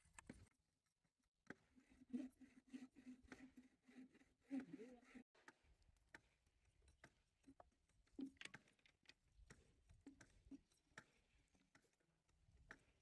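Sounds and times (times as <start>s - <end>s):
faint clicks and taps: 5.4s - 13.0s.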